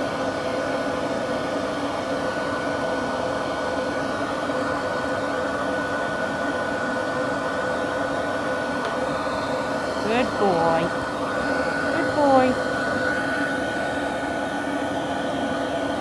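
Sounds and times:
dog grooming dryer blowing: 0.0s - 16.0s.

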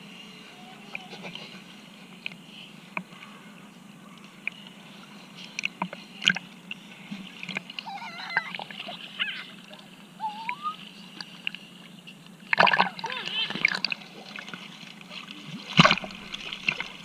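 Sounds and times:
faint high wavering cries: 0.3s - 1.3s, 7.8s - 11.0s
sea water sloshing and splashing: 12.4s - 17.0s
small sharp splashes: 12.5s - 17.0s.

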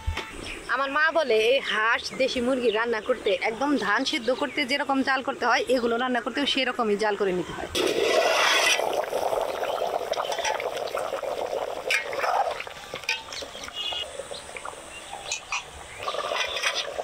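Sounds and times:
curry bubbling in pot: 7.8s - 17.0s
metal ladle clinking on pot: 13.0s - 13.6s.

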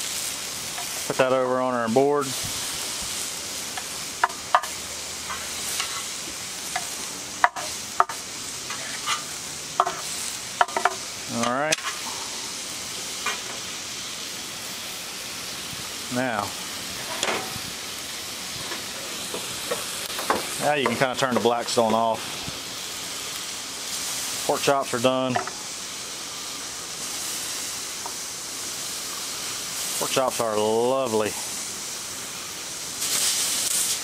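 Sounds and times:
meat sizzling on a griddle: 0.0s - 34.0s.

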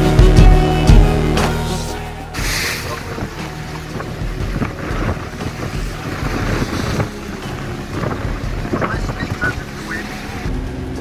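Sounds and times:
water splashing along hull: 1.4s - 11.0s
wind buffeting microphone: 2.4s - 9.9s.

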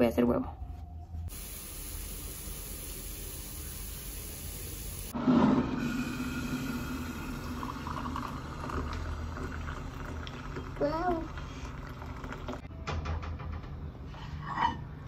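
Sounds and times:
food sizzling in a frying pan: 1.3s - 5.2s
water poured into a ceramic mug: 5.8s - 12.6s.

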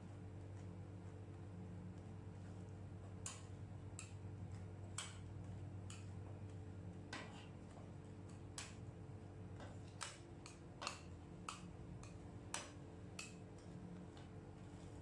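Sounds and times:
steady low hum: 0.0s - 15.0s
metal spatula tapping and scraping: 3.2s - 8.8s, 9.6s - 15.0s.

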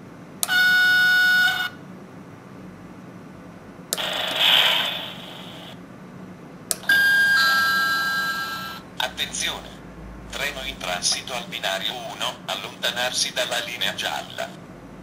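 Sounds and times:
horn-like tone from speaker: 0.5s - 1.8s.

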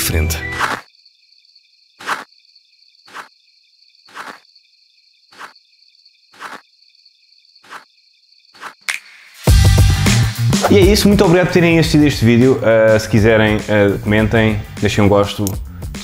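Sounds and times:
crickets chirping: 0.0s - 9.5s
footsteps on asphalt: 4.1s - 4.4s, 6.4s - 6.6s.

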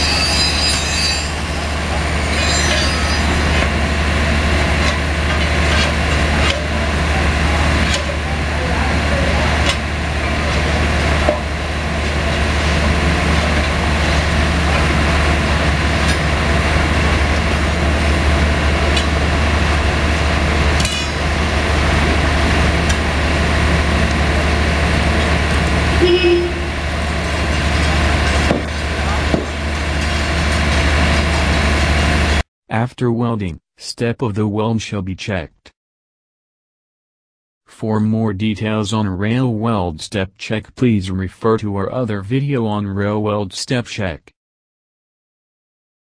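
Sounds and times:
machine power unit droning: 1.5s - 32.4s.

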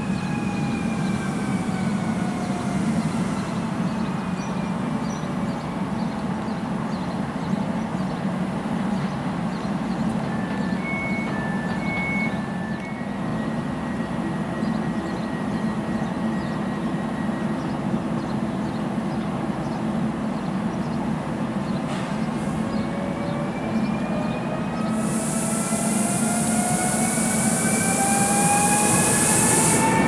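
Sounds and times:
standing train hum: 0.0s - 30.0s
train traction drive whine: 0.0s - 30.0s
two-tone warning beeps: 10.4s - 13.1s.

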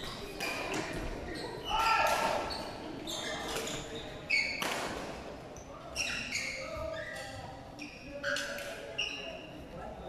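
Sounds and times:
shoe squeaks on court floor: 0.8s - 4.9s, 5.9s - 9.5s.

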